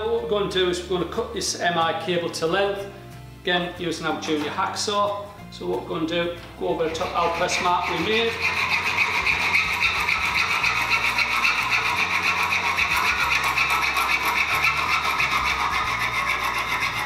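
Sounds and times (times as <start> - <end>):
hacksaw cutting cable: 6.8 - 17.0.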